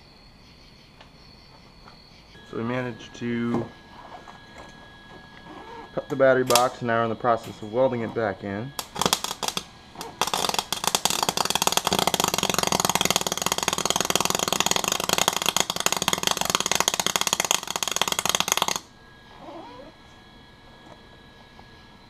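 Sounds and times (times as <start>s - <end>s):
welder arc crackling: 5.5s - 8.0s, 8.8s - 18.9s.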